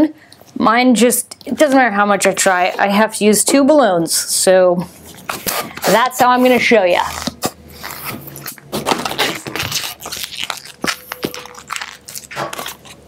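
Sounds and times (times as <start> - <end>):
balloon rubbing and crinkling: 4.8 - 13.0
balloon squeak: 7.0 - 13.0.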